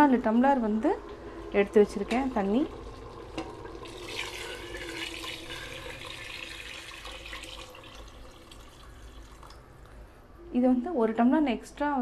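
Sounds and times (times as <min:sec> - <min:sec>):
water pouring into liquid: 0:00.7 - 0:09.6.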